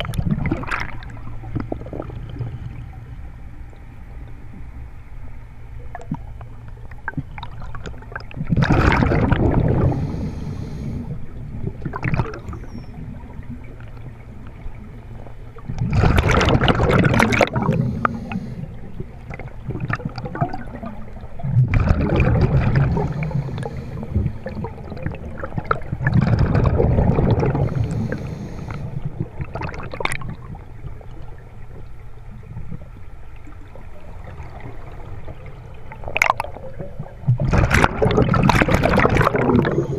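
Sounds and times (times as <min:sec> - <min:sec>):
gurgling exhaled bubbles: 0:00.0 - 0:03.1, 0:07.0 - 0:31.4, 0:32.4 - 0:39.9
low rumble of water: 0:00.0 - 0:39.9
regulator inhaling hiss: 0:09.8 - 0:11.2, 0:17.6 - 0:18.8, 0:22.9 - 0:24.5, 0:27.6 - 0:29.0.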